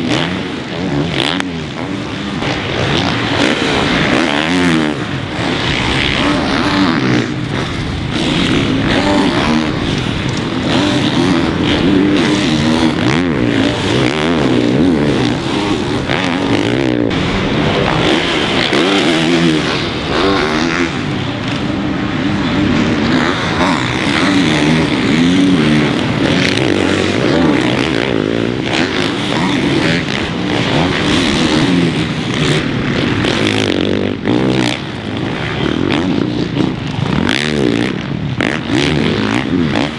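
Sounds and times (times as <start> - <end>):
dirt bikes revving: 0.0 - 39.9.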